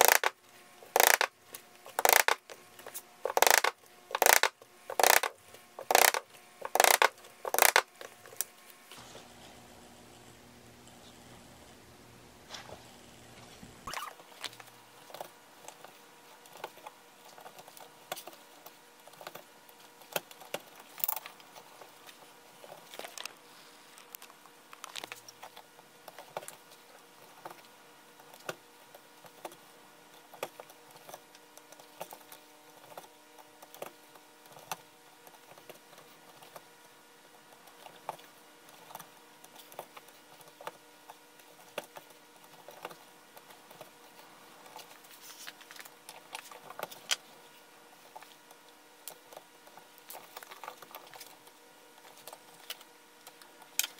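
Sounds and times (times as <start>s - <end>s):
needle and thread clicking: 0.0s - 1.3s, 1.9s - 2.5s, 3.3s - 8.5s
faint steady hum: 0.0s - 53.9s.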